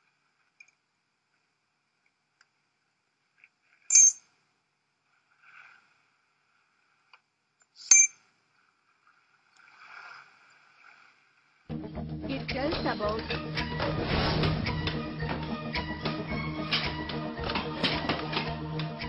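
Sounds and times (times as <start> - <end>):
metallic clicks with ring: 3.9 - 4.3, 7.8 - 8.2.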